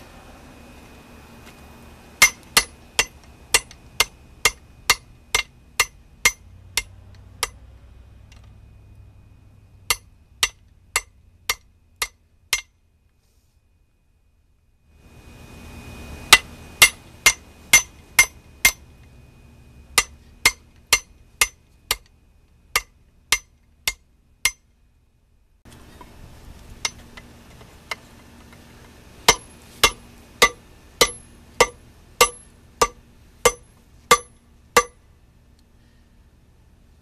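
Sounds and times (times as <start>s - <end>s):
hammer striking steel on anvil: 2.2s - 7.7s, 9.8s - 12.8s, 16.3s - 18.9s, 20.0s - 22.1s, 22.7s - 24.7s, 29.3s - 35.0s.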